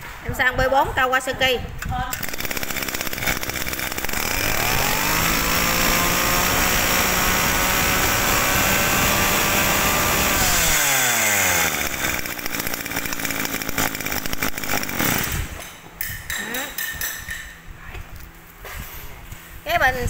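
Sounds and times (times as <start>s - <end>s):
brush cutter engine revving: 2.1s - 15.6s.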